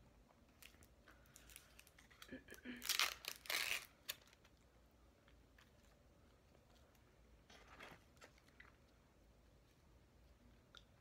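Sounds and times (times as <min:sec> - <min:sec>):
packet tearing and crinkling: 0:02.7 - 0:04.4.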